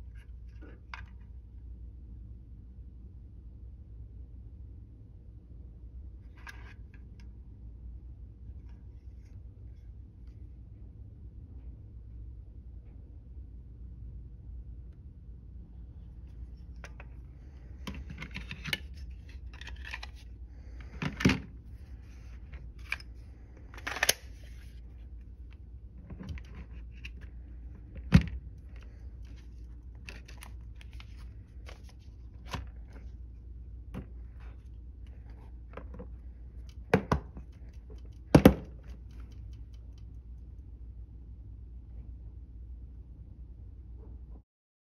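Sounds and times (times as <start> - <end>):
plastic magazines clicking and clacking: 23.7 - 24.7.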